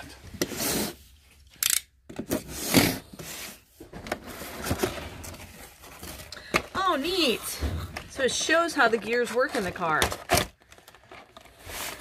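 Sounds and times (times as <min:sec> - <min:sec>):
cardboard scraping and rubbing: 0:00.3 - 0:01.1, 0:02.2 - 0:06.3, 0:11.2 - 0:12.0.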